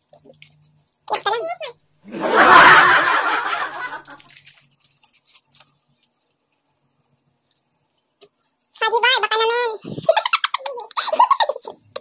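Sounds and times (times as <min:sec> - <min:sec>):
plastic wrapper crinkling: 0:04.0 - 0:06.6.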